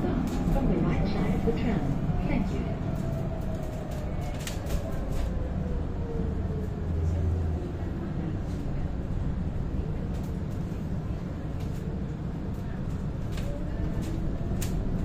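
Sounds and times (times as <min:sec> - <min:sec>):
tram wheels rumbling on rails: 0:00.0 - 0:15.0.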